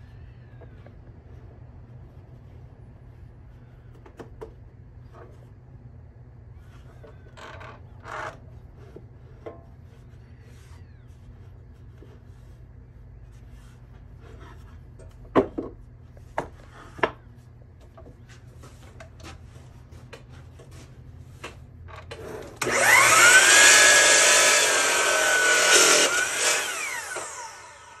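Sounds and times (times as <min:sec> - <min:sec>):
saw cutting board: 0:22.3 - 0:28.0
miter saw motor whine: 0:22.6 - 0:28.0.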